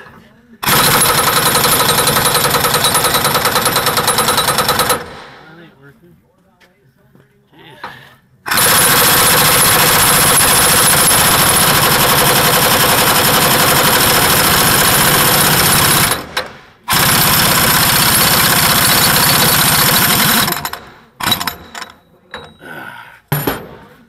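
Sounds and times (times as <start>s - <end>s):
air impact wrench hammering: 0.6s - 5.5s, 8.5s - 22.5s.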